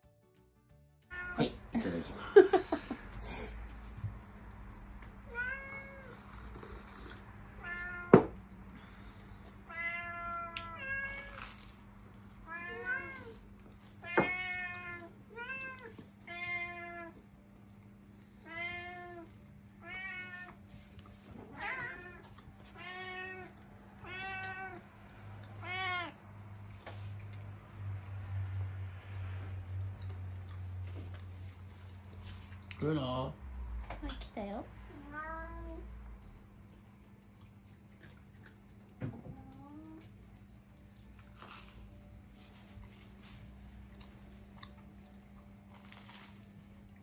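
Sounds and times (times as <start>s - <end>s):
cat meowing: 1.1s - 1.6s, 5.3s - 6.6s, 7.6s - 8.3s, 9.7s - 11.5s, 12.5s - 13.4s, 14.0s - 17.2s, 18.4s - 20.6s, 21.5s - 24.8s, 25.6s - 26.2s.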